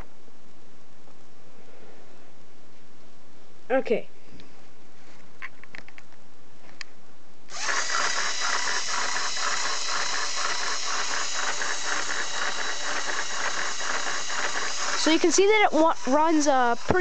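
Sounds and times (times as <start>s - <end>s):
electric motor whirring: 7.5s - 17.0s
rhythmic plastic clatter: 7.6s - 17.0s.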